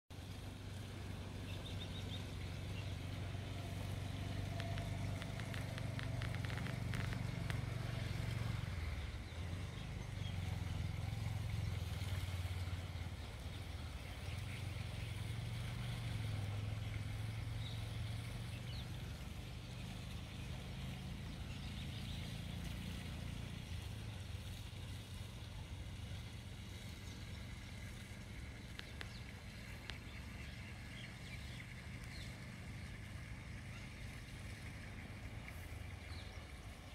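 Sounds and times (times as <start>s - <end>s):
low engine hum: 0.1s - 36.9s
faint ticks: 3.2s - 8.6s, 28.6s - 30.6s.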